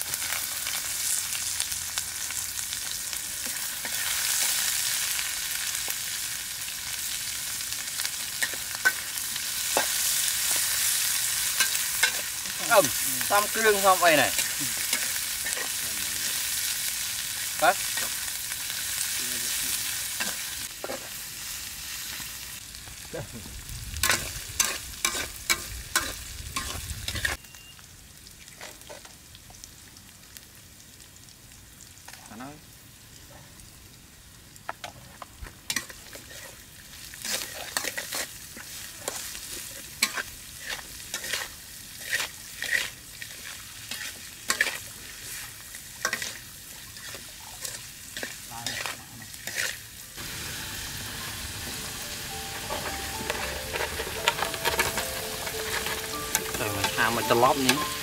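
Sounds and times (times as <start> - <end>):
vegetables sizzling in hot oil: 0.0 - 58.0
metal spatula scraping wok: 8.4 - 16.5, 24.0 - 27.4, 35.7 - 36.6, 37.2 - 46.4, 47.0 - 50.0, 51.5 - 58.0.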